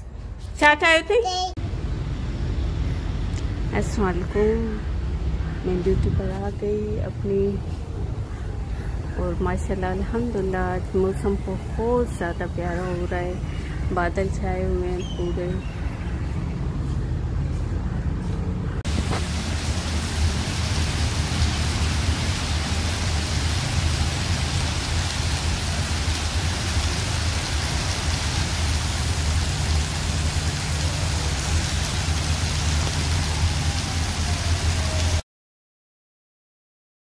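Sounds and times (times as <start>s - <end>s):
rain falling on wet paving: 18.9s - 35.2s.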